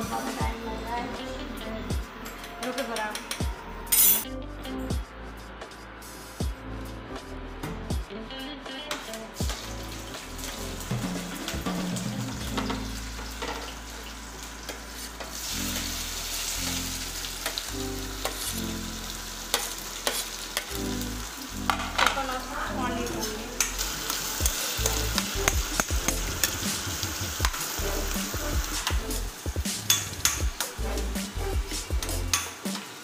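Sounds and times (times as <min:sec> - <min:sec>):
onions sizzling in hot oil: 0:09.4 - 0:33.0.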